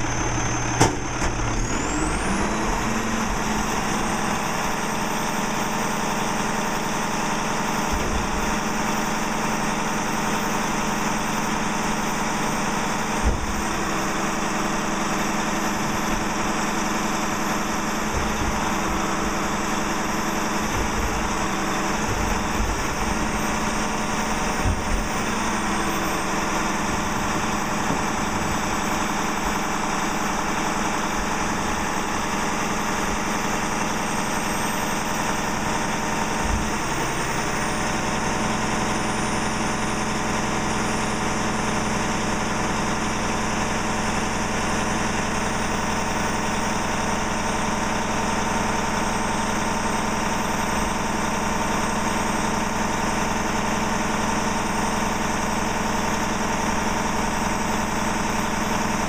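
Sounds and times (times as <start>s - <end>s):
diesel engine idling: 0.0s - 59.0s
low thump: 0.8s - 1.5s, 13.2s - 13.7s, 20.6s - 25.4s.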